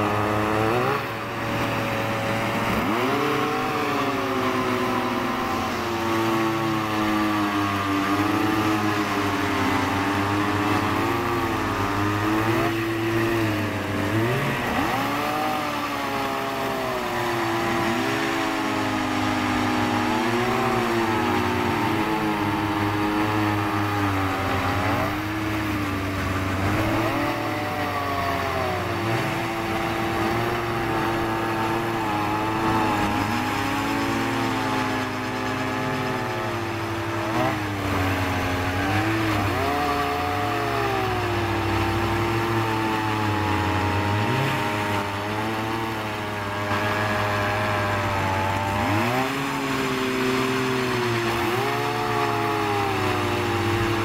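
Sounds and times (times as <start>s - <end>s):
ice auger engines revving: 0.0s - 54.0s.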